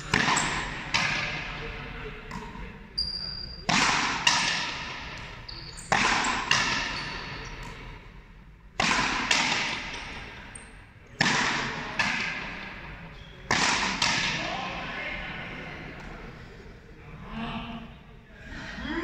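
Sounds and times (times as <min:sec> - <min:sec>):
rackets striking rubber ball: 0:00.0 - 0:01.5, 0:03.6 - 0:07.9, 0:08.8 - 0:12.7, 0:13.5 - 0:14.4
ball smacking wall with echo: 0:00.0 - 0:02.8, 0:03.6 - 0:14.9.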